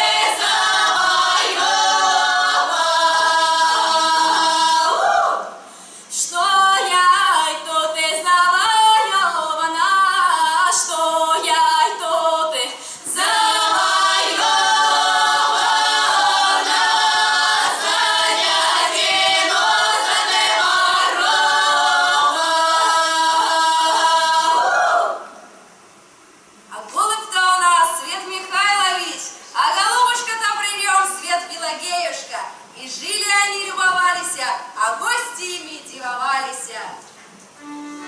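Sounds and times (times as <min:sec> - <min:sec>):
women singing a cappella harmony: 0:00.0 - 0:25.4.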